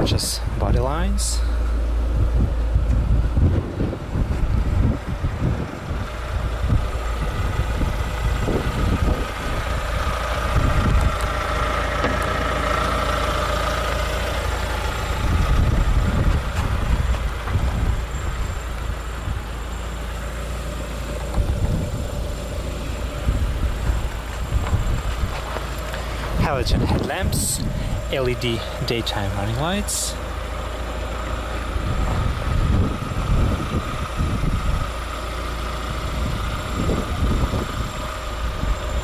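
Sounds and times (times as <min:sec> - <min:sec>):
car engine idling: 0:00.0 - 0:39.0
wind buffeting microphone: 0:01.7 - 0:11.9, 0:14.6 - 0:19.7, 0:21.2 - 0:28.9, 0:31.6 - 0:35.0, 0:35.8 - 0:39.0.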